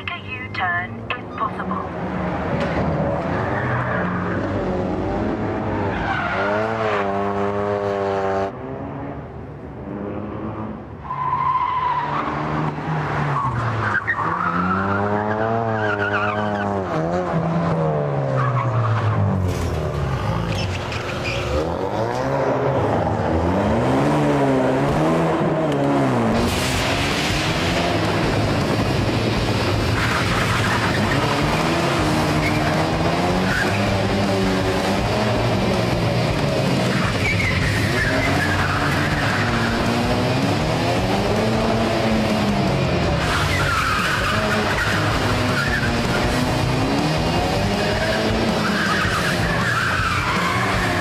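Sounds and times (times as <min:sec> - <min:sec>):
car engine revving: 0:01.0 - 0:51.0
tyres squealing: 0:36.9 - 0:39.9, 0:47.8 - 0:51.0.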